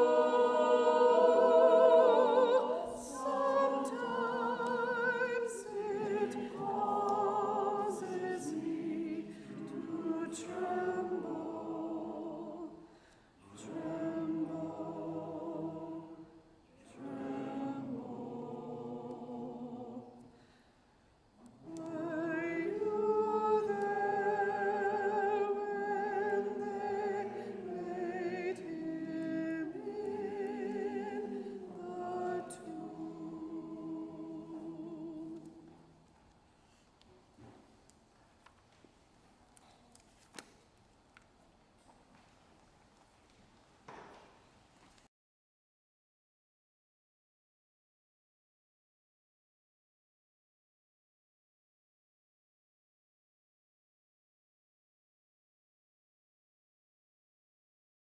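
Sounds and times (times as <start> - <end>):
voices singing unaccompanied: 0.0 - 20.3, 21.5 - 35.8.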